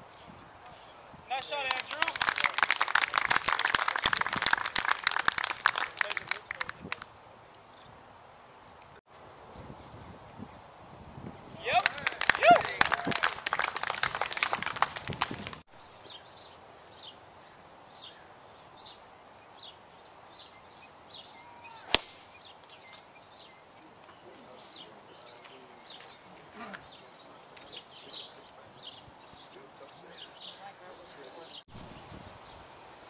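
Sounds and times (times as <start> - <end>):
voices: 0.6 - 7.1, 11.5 - 15.2, 23.7 - 31.6
people clapping: 1.3 - 7.1, 11.7 - 15.6
birds chirping: 11.3 - 32.7
golf club striking ball: 21.9 - 22.4.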